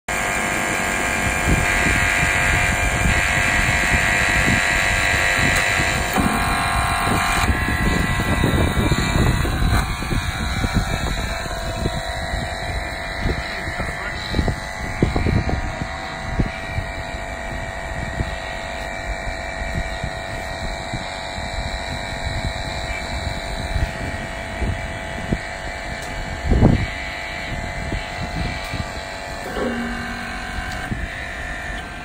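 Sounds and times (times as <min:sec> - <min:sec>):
wind buffeting microphone: 0:00.1 - 0:32.0.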